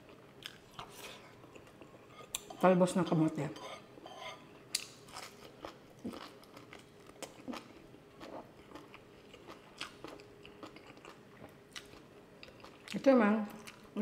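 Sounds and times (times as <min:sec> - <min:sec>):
person chewing food: 0:00.0 - 0:02.5, 0:04.5 - 0:13.0.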